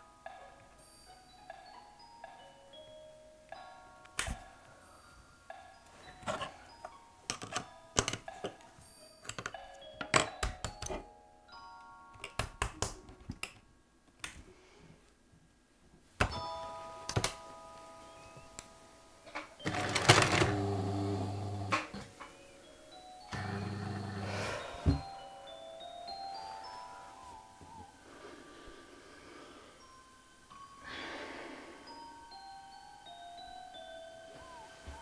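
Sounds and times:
chiming bell-like music: 0.0 - 12.3, 16.3 - 21.4, 22.1 - 35.0
sewing machine motor humming: 19.6 - 21.9, 23.3 - 24.3.

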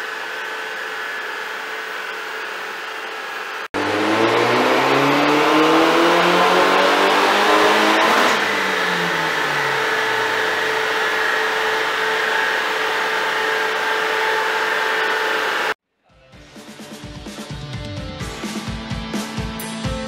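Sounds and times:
car engine winding down: 0.0 - 15.8
steady whine: 0.0 - 15.8.

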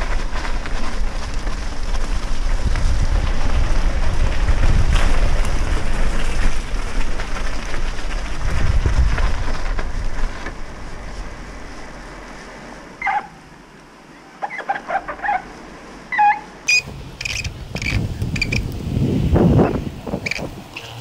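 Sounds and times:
wind buffeting microphone: 0.0 - 11.2, 16.7 - 21.0
bicycle tyres on gravel: 0.0 - 21.0
short high chirping calls: 16.1 - 18.6, 20.2 - 21.0.

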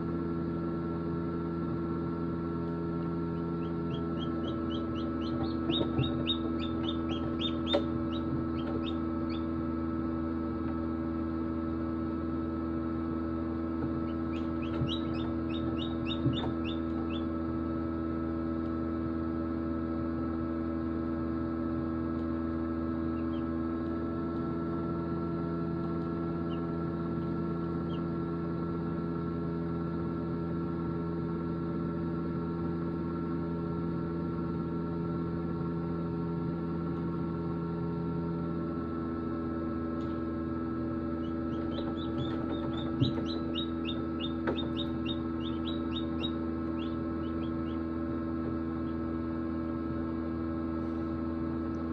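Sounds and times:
egg incubator humming: 0.0 - 51.9
hatchlings peeping: 3.2 - 9.8, 13.8 - 17.5, 23.0 - 23.6, 26.3 - 28.2, 40.8 - 49.3.

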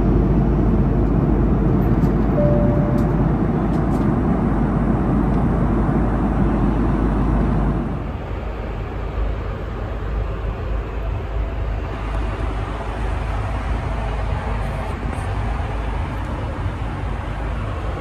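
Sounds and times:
airplane cabin engine rumble: 0.0 - 18.0
single steady tone: 2.4 - 3.4.

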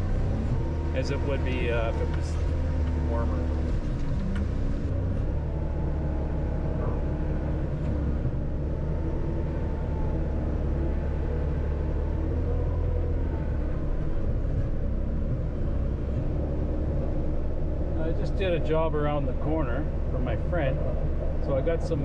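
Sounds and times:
diesel engine running: 0.0 - 22.0
faint whining tones: 0.0 - 22.0.

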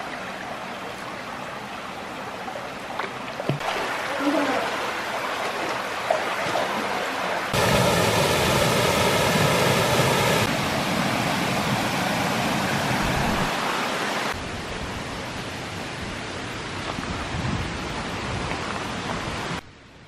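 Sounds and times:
stream running over rocks: 0.0 - 19.6
steady outdoor hiss: 7.1 - 20.0.

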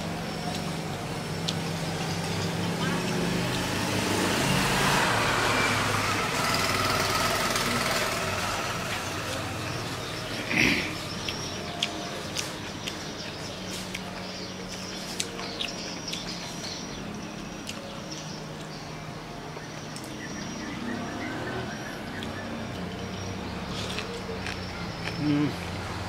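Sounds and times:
birds chirping faintly: 0.0 - 26.0
chewing noodles: 23.7 - 25.8.

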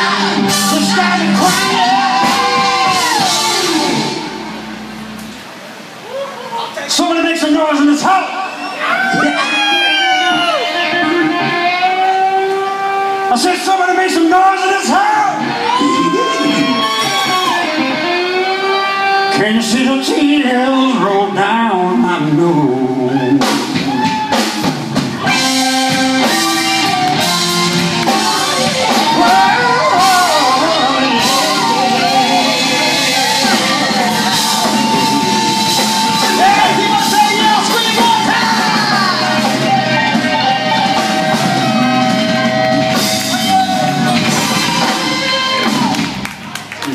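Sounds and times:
men singing: 0.0 - 4.2, 28.0 - 42.0
drum kit: 0.0 - 5.8, 15.4 - 19.1, 23.2 - 46.9
electric guitars: 0.0 - 6.0, 8.5 - 46.9
keyboard: 0.0 - 6.0, 7.2 - 46.9.

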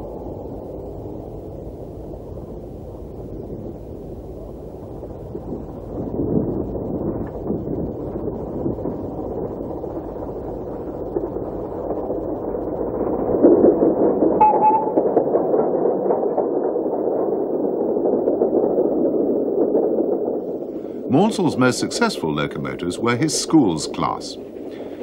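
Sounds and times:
steam locomotive exhaust beats: 0.0 - 15.2, 20.4 - 25.0.

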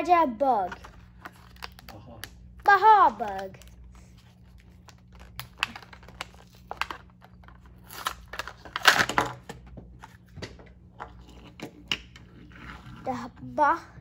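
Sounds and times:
plastic packaging crackling and tearing: 1.0 - 2.2, 3.2 - 9.2.

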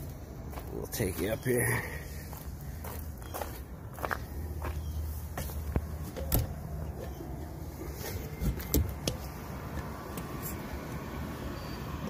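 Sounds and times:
footsteps on metal ladder rungs: 0.5 - 9.2.

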